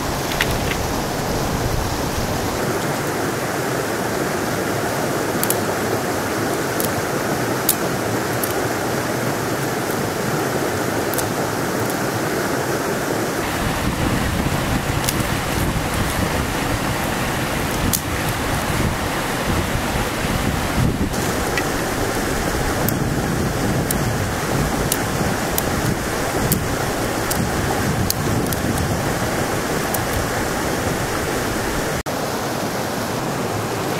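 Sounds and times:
clicks of sticks and stones: 0.0 - 1.0, 5.4 - 5.8, 6.5 - 8.8, 9.5 - 10.2, 10.9 - 12.2, 14.9 - 16.2, 17.0 - 18.6, 21.1 - 23.0, 24.8 - 29.2, 29.8 - 30.3
river flowing over rocks: 0.0 - 33.9.

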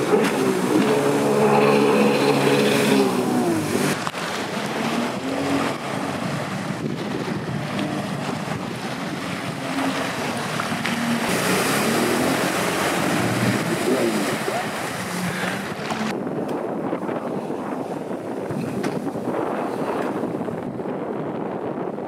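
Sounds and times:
jet ski engine revving: 0.0 - 16.2
water splashing off hull: 0.0 - 20.8
wind noise: 0.0 - 22.0.

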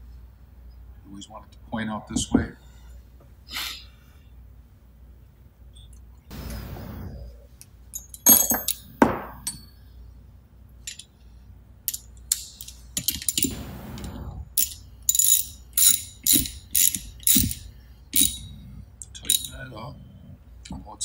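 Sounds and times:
steel tools clinking on metal: 7.9 - 9.8, 14.6 - 18.5
ratchet wrench clicking: 14.6 - 18.4.

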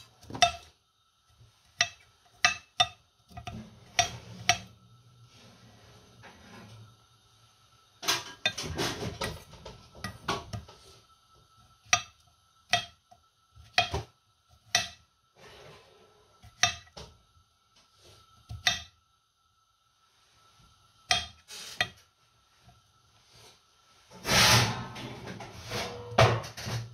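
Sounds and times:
knife chopping on stone board: 13.6 - 15.0, 16.4 - 16.9, 18.5 - 18.9, 21.1 - 22.0.

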